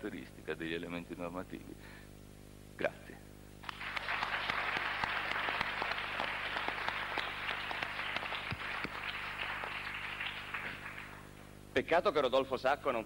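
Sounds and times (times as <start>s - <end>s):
audience applauding: 3.6s - 11.4s.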